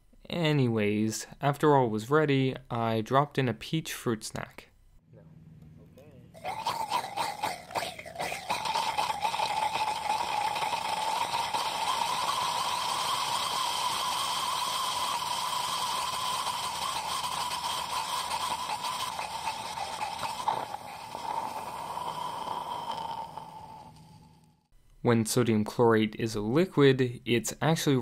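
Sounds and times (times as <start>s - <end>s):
hissing whistling chemical burn: 7.6s - 24.3s.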